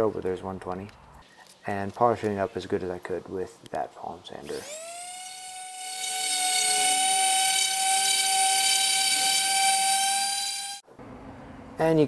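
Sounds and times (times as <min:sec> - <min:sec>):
palm sander on steel: 0:04.5 - 0:10.8.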